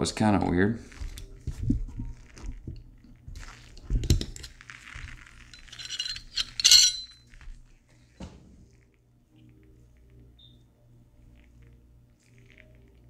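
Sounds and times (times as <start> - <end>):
pistol parts clinking and scraping: 4.0 - 7.2.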